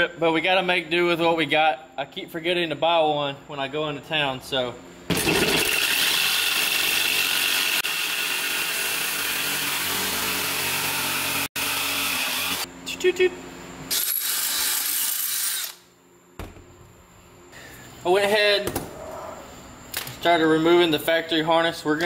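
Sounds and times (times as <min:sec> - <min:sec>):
jigsaw cutting metal: 0:05.1 - 0:12.7, 0:13.9 - 0:15.8.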